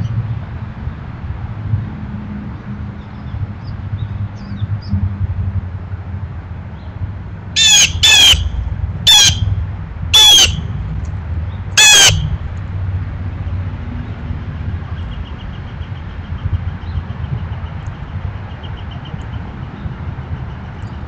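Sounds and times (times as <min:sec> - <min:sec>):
low background rumble: 0:00.0 - 0:21.0
blue jay calls: 0:07.6 - 0:09.6, 0:10.2 - 0:10.8, 0:11.8 - 0:12.4.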